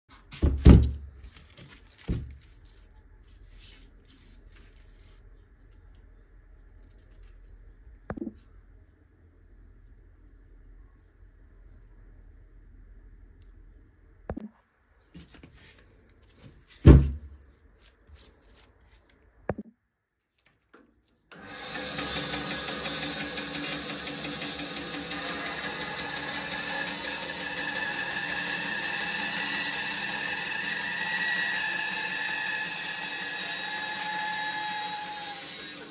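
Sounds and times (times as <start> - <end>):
log thudding on rubber mat: 16.8 - 17.4
bandsaw running: 21.3 - 35.9.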